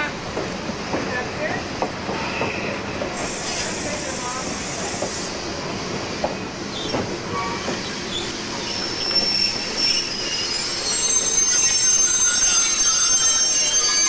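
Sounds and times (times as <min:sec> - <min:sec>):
train cars rumbling: 0:00.0 - 0:14.0
train wheels squealing: 0:06.7 - 0:14.0.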